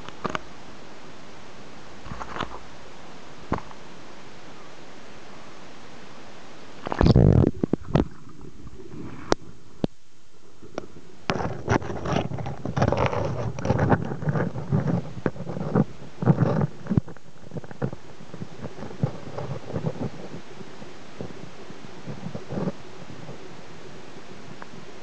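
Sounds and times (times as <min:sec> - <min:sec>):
muffled underwater gurgling: 0:06.8 - 0:25.0.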